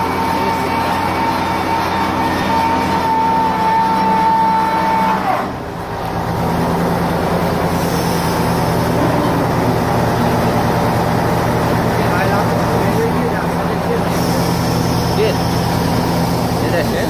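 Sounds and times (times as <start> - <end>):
transformer humming: 0.0 - 17.0
high whine bending down: 6.9 - 17.0.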